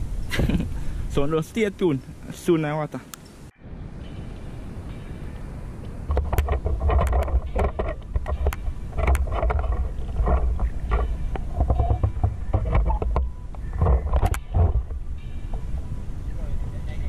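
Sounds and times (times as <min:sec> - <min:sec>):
low rumbling knocks: 0:06.1 - 0:15.8.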